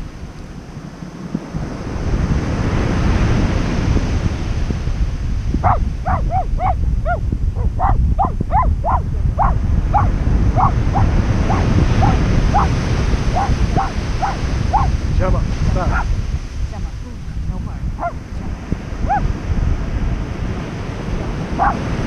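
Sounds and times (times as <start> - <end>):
surf washing onto beach: 0.0 - 22.0
wind on microphone: 0.0 - 22.0
short high animal calls: 13.4 - 14.9.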